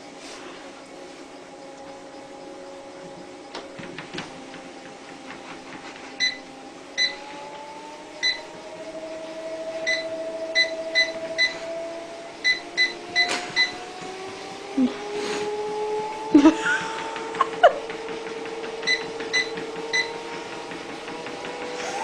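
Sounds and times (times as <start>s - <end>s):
treadmill motor whine: 0.0s - 22.0s
control panel beeps: 6.2s - 6.4s, 8.2s - 8.4s, 9.9s - 11.6s, 12.4s - 13.8s, 18.9s - 20.2s.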